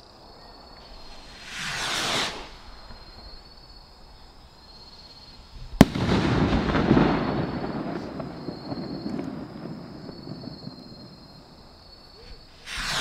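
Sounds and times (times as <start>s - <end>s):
firework rocket whoosh: 0.8s - 3.8s, 12.4s - 13.0s
firework crackling: 0.8s - 4.2s, 5.3s - 13.0s
firework bang: 0.9s - 3.8s, 5.7s - 13.0s.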